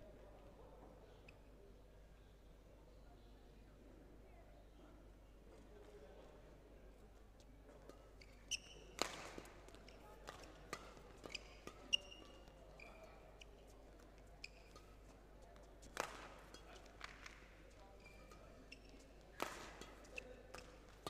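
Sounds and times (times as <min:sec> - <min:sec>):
court shoes squeaking: 0:07.9 - 0:21.0
racket striking shuttlecock: 0:08.8 - 0:12.6, 0:15.9 - 0:17.4, 0:19.4 - 0:21.0.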